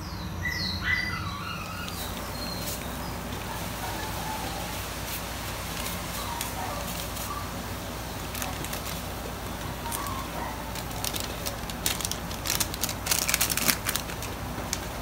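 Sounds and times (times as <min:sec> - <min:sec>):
soup boiling and bubbling: 0:07.0 - 0:15.0
foil sachet crinkling: 0:08.0 - 0:15.0.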